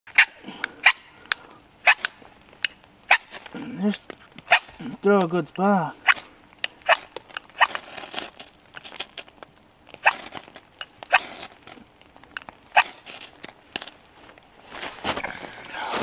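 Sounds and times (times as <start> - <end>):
knife scraping ferro rod: 10.0 - 10.5.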